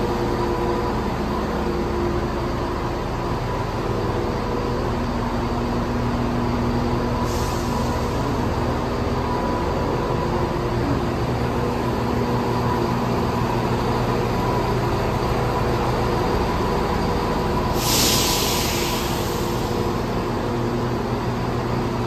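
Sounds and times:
diesel train engine idling: 0.0 - 22.0
air release hiss: 7.2 - 8.5, 17.7 - 20.1.

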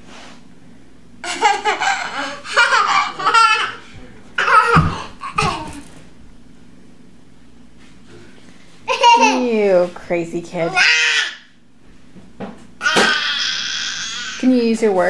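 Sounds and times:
toddler laughing and giggling: 1.2 - 5.8, 8.9 - 9.5.

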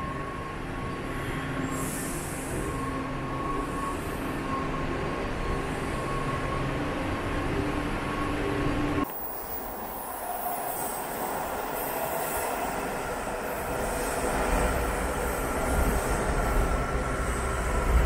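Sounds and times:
train wheels rumbling on rail: 0.0 - 18.0.

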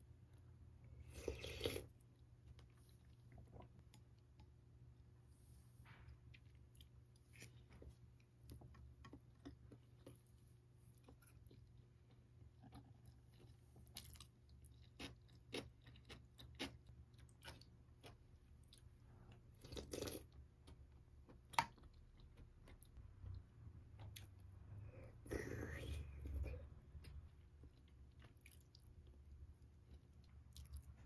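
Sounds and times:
chewing: 26.3 - 29.2.

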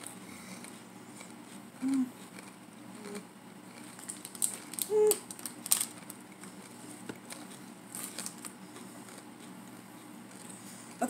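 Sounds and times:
snack wrapper crinkling: 2.2 - 9.6.

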